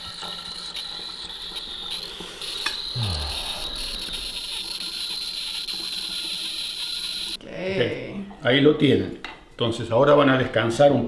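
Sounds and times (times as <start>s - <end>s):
wine aerator hissing: 0.0s - 7.4s.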